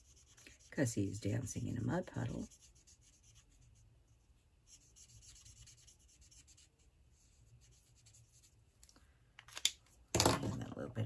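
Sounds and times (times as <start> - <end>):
marker scratching on cardstock: 0.0 - 0.9, 1.8 - 8.6.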